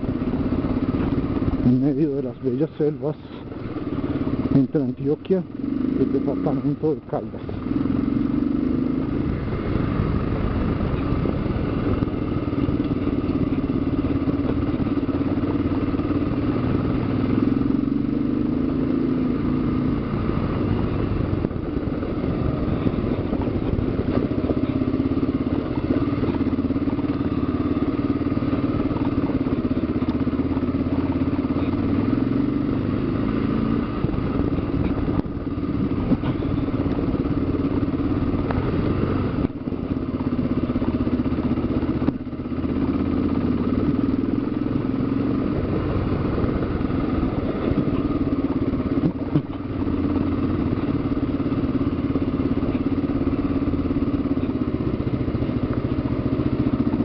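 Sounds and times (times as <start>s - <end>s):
motorcycle engine running: 0.0s - 57.0s
rattle on gravel track: 0.0s - 57.0s.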